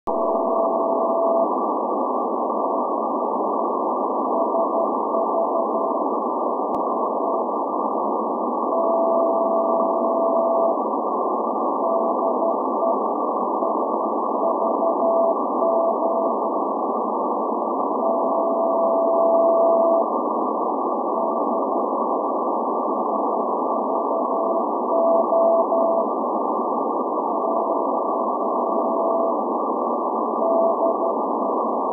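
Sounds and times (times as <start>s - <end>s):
morse code beeping tone: 0.1s - 1.5s, 8.7s - 10.8s, 14.4s - 16.4s, 18.0s - 20.1s, 24.1s - 26.1s, 30.4s - 31.1s
radio static hiss: 0.1s - 31.9s.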